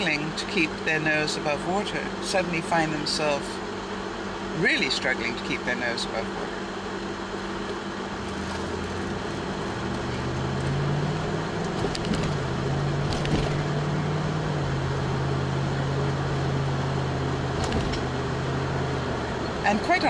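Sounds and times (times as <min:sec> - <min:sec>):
car engine hum: 0:00.0 - 0:20.0
road noise inside car: 0:00.0 - 0:20.0.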